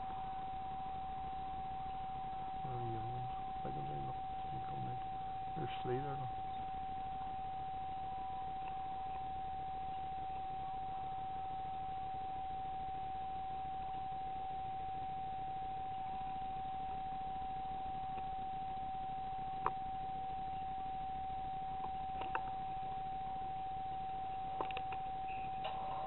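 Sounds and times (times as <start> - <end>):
steady electronic whine: 0.0 - 26.0
faint clicks: 18.1 - 18.3, 19.6 - 19.9, 21.8 - 22.9, 24.3 - 25.9.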